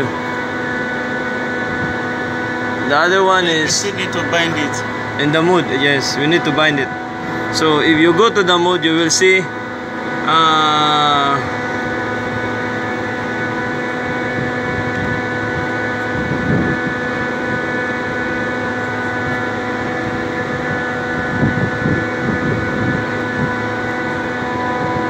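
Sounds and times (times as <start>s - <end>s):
chiller machine drone and whine: 0.0s - 25.0s.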